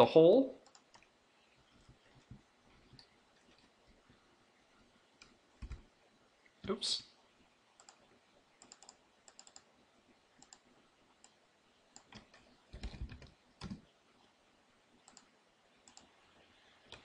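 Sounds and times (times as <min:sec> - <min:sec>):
computer keyboard key presses: 0:05.6 - 0:05.8, 0:12.0 - 0:13.8.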